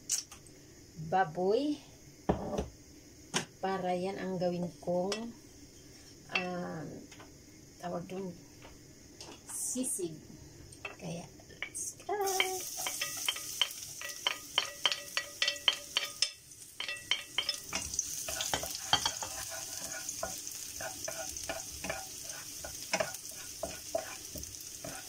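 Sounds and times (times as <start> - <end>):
onion sizzling in oil: 10.7 - 25.0
spatula tapping and scraping wok: 11.6 - 25.0.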